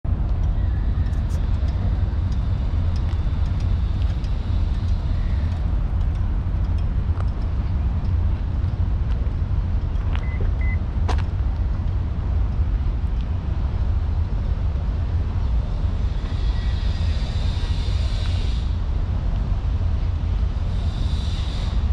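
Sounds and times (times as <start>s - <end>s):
distant road traffic rumble: 0.0s - 21.9s.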